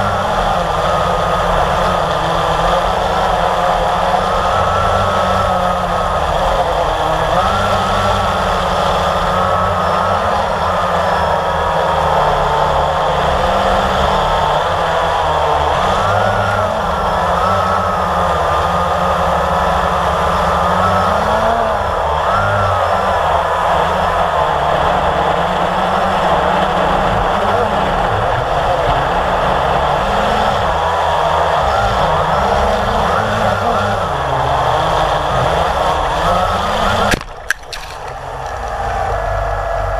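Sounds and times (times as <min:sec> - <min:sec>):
drone propellers whirring: 0:00.0 - 0:39.9
quadcopter motors whining: 0:00.0 - 0:39.9
drone striking the ground: 0:37.0 - 0:39.4.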